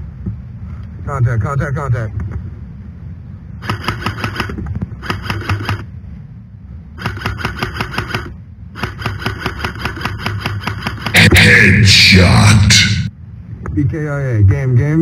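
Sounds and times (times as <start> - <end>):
airsoft rifle firing bursts: 3.6 - 5.9, 7.0 - 11.2.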